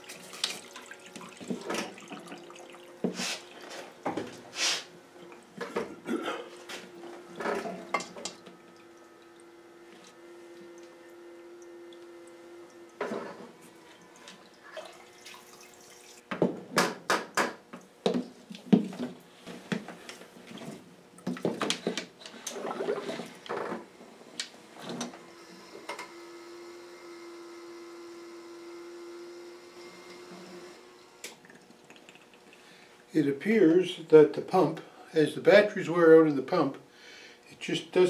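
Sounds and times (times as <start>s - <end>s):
small pump humming: 0.0s - 16.5s, 17.4s - 35.7s
fluid splashing: 14.4s - 16.2s.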